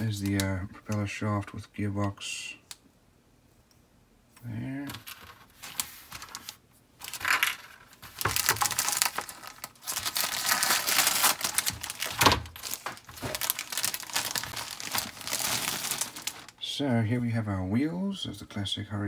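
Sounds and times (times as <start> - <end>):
plastic bag crinkling: 4.9 - 16.6.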